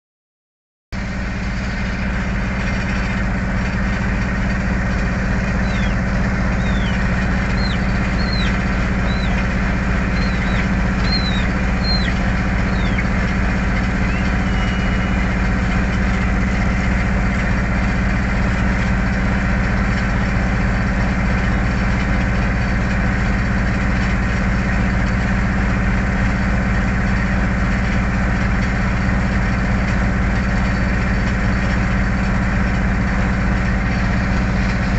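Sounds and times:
ferry engine drone: 0:01.0 - 0:34.9
high falling chirps: 0:05.4 - 0:15.3.

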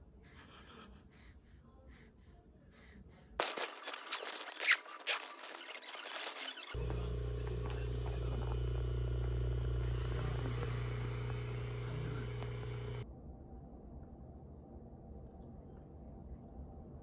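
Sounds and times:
massager pump humming: 0:06.7 - 0:13.0.

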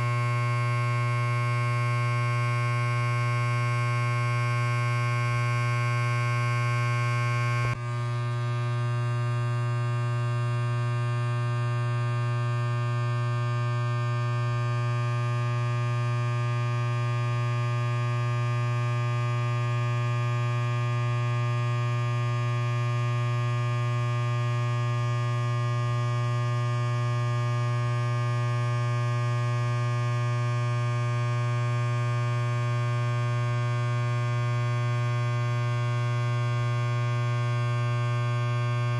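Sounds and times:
electric hair clipper buzzing: 0:00.0 - 0:23.0.

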